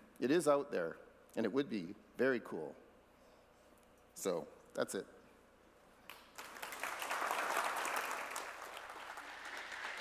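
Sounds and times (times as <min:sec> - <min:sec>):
audience applauding: 0:06.1 - 0:10.0.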